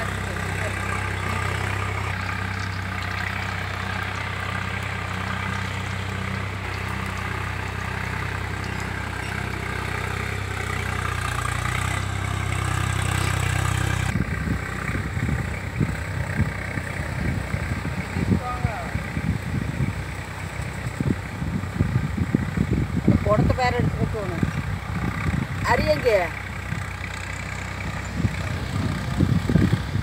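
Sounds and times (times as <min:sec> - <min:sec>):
engine idling: 0:00.0 - 0:30.0
wind noise on microphone: 0:14.1 - 0:27.0, 0:27.8 - 0:30.0.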